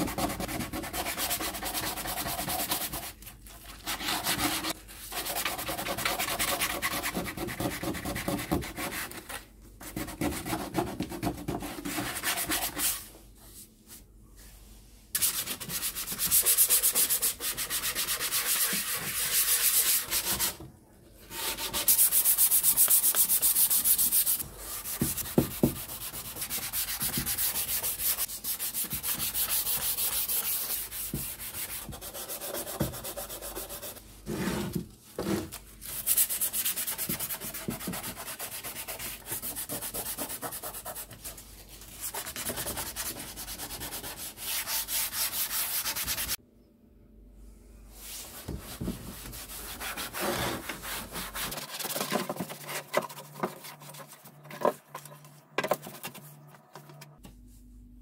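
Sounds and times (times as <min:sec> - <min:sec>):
hand sanding with sandpaper: 0:00.0 - 0:03.2, 0:03.8 - 0:09.3, 0:15.2 - 0:20.6, 0:21.3 - 0:34.0, 0:35.8 - 0:46.4, 0:48.0 - 0:54.2.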